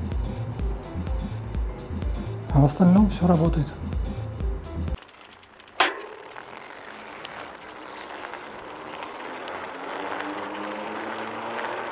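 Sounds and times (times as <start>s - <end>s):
sharp knock: 5.8s - 6.2s.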